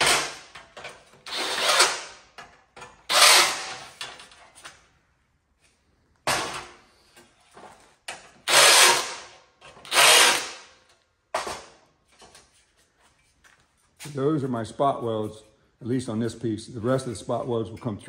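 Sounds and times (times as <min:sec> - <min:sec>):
cordless drill boring steel: 0:09.9 - 0:10.5.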